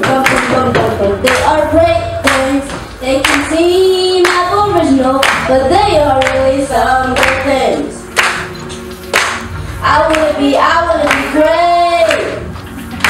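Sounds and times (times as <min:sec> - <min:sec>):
hand claps: 0:00.0 - 0:00.6, 0:02.2 - 0:03.5, 0:04.2 - 0:04.4, 0:05.2 - 0:05.5, 0:06.2 - 0:06.4, 0:07.2 - 0:07.5, 0:08.1 - 0:09.5, 0:11.0 - 0:13.0
woman singing: 0:00.0 - 0:08.0, 0:09.8 - 0:12.5.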